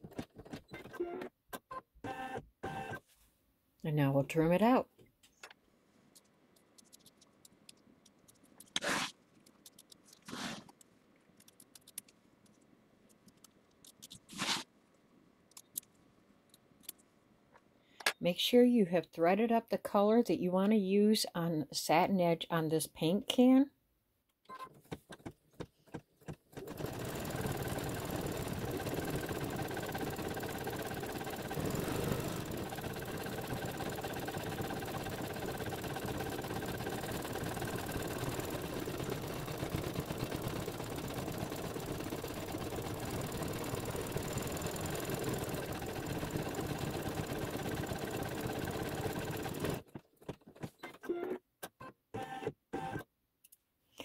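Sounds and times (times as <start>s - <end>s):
embroidery machine stitching: 26.5s - 51.0s.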